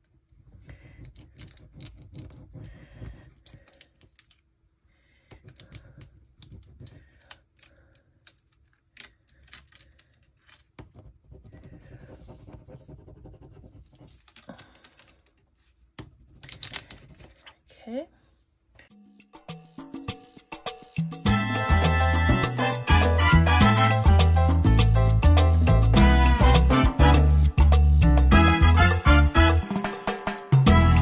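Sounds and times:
plastic stick scratching on paper: 0.5s - 4.4s, 5.4s - 17.0s.

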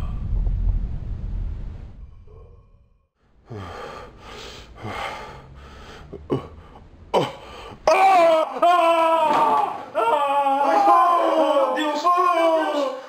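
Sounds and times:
man breathing heavily: 3.3s - 7.8s.

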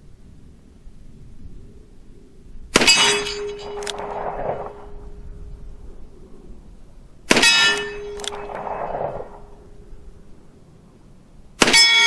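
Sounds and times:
bullet clanging on steel target: 2.8s - 4.1s, 7.4s - 8.6s.

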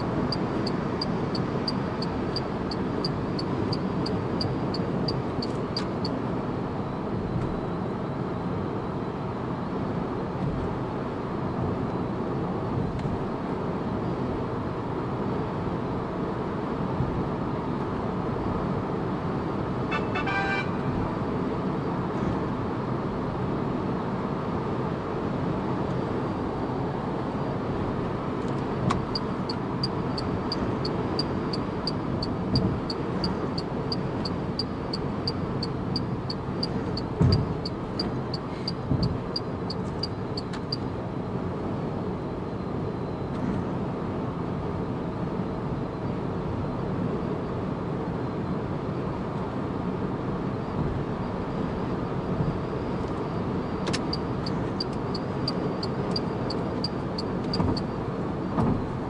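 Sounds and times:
car tyre and wind noise: 0.0s - 20.0s, 20.8s - 59.0s
brief beep: 19.9s - 20.8s
low road bumps: 36.2s - 40.0s.

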